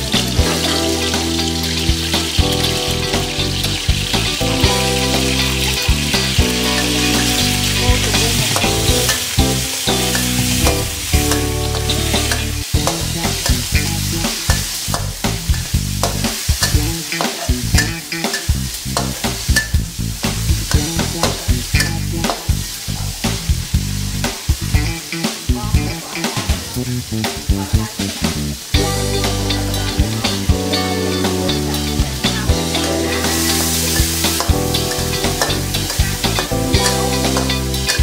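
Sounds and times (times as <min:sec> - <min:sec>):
chicken sizzling in oil: 0:00.0 - 0:38.0
metal spatula scraping wok: 0:06.5 - 0:19.8, 0:32.6 - 0:38.0.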